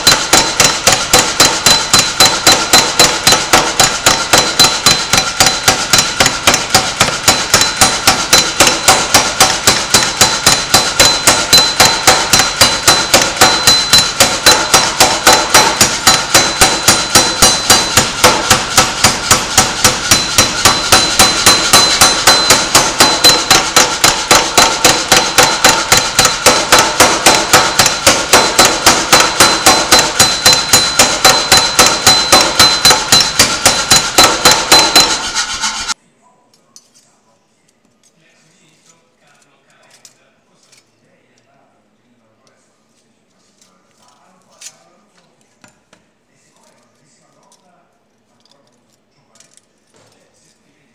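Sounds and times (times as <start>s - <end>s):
hammer ringing on copper sheet: 0.0s - 36.0s.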